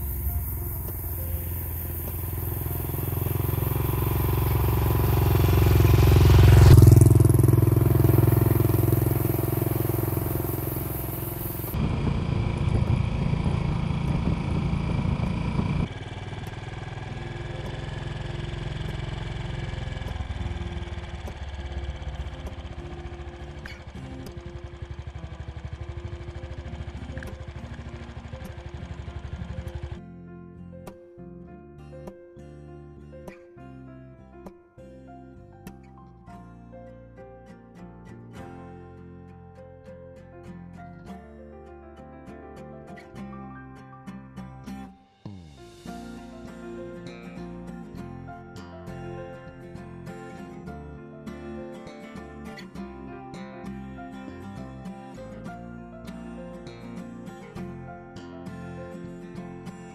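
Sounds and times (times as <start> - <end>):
motorcycle passing by: 0.0 - 30.0
motorcycle engine riding along: 0.0 - 30.1.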